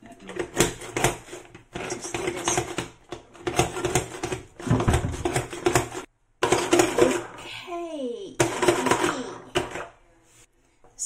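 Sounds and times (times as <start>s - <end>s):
hand blender chopping: 0.4s - 7.4s, 8.4s - 9.9s.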